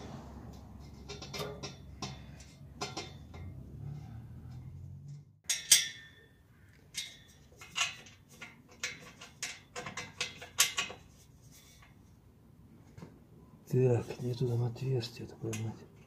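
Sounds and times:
metal fittings clinking: 5.4 - 6.2.

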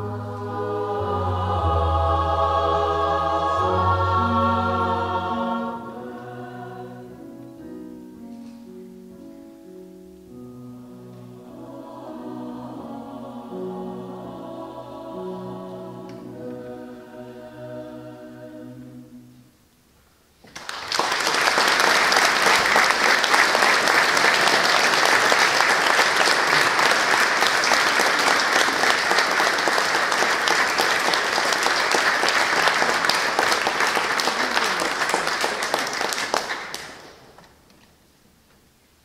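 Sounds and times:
choir holding a chord: 0.0 - 7.4, 10.7 - 19.5, 21.6 - 36.9
audience clapping: 20.4 - 37.5.

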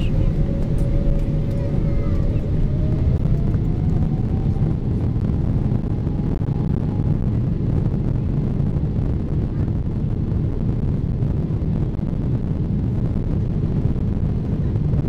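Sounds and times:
faint engine whine rising: 0.0 - 15.0
jet engine rumble: 0.0 - 15.0.

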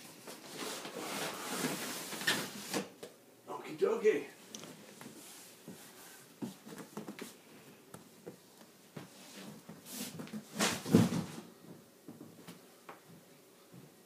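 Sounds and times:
packaging rubbing scrape: 0.4 - 2.9.

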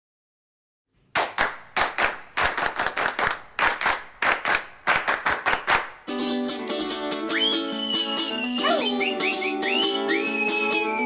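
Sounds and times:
people clapping rhythmically: 1.1 - 6.2.

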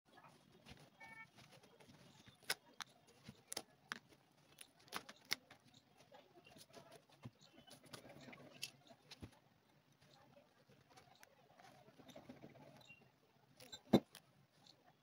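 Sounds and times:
brittle plastic clicks and snaps: 2.4 - 5.6.

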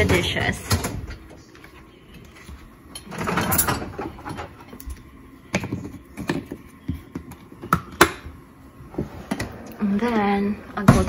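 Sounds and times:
dishwasher racks rattling: 3.0 - 4.6.

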